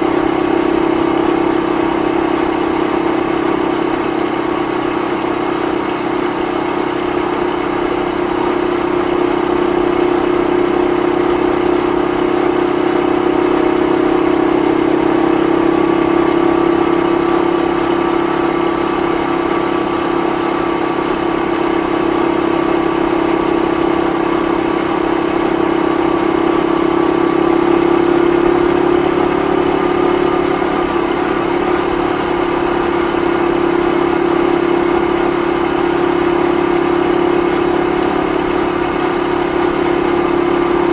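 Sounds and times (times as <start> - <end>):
motorcycle engine cruising: 0.0 - 40.9.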